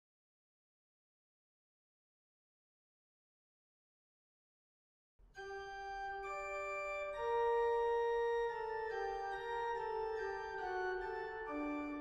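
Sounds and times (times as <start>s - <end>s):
organ playing sustained chords: 5.4s - 12.0s.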